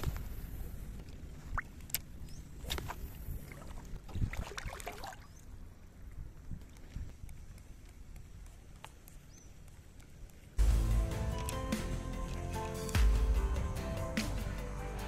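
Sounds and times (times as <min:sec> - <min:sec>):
wind rumble on microphone: 0:00.0 - 0:04.8, 0:05.5 - 0:08.4
seawater sloshing and lapping: 0:01.0 - 0:05.7
water splashing: 0:01.4 - 0:05.6.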